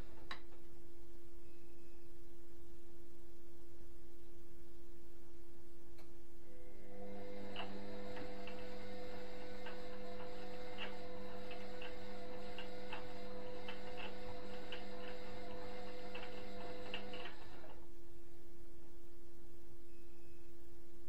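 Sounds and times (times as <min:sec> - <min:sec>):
washing machine running: 0:06.5 - 0:17.9.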